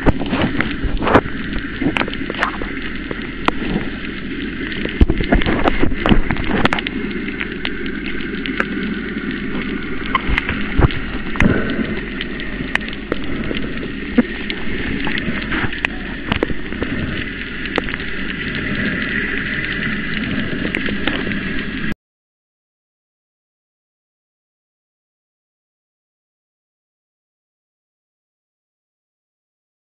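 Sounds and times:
muffled underwater noise: 0:00.0 - 0:21.9
sharp underwater clicks and crackles: 0:00.0 - 0:22.0.

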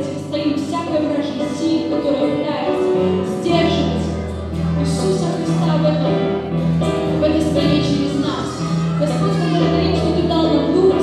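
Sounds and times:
acoustic guitar: 0:00.0 - 0:11.0
keyboard: 0:00.0 - 0:11.0
bass guitar: 0:02.8 - 0:11.0.

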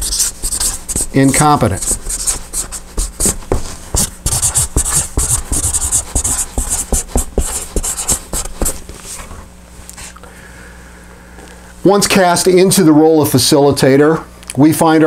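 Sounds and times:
marker squeaking on paper: 0:00.0 - 0:08.8.

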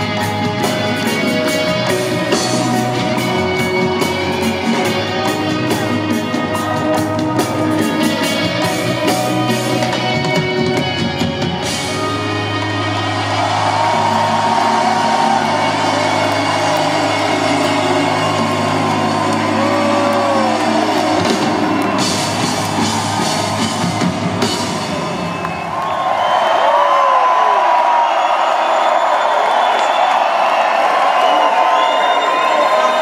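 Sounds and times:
live reggae band: 0:00.0 - 0:13.0
crowd noise: 0:00.0 - 0:33.0
drum beat: 0:13.3 - 0:25.8.

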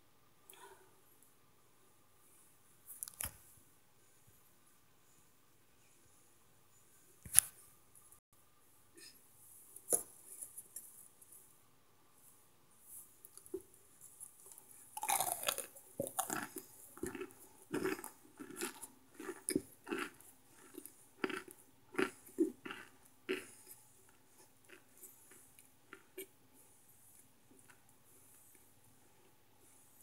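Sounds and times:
crunchy chewing: 0:13.2 - 0:26.3.

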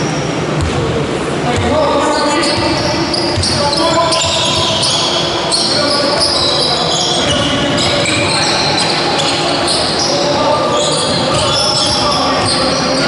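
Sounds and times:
basketball bouncing on court: 0:00.6 - 0:00.9, 0:02.4 - 0:05.0, 0:07.1 - 0:08.3, 0:11.1 - 0:13.0
voices calling out: 0:01.5 - 0:13.0
shoe squeaks: 0:02.0 - 0:13.0.

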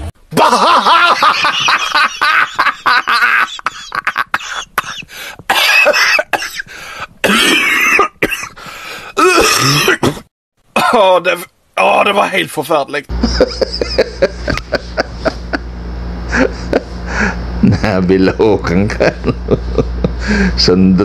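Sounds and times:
person coughing: 0:04.4 - 0:08.6, 0:09.2 - 0:11.0.

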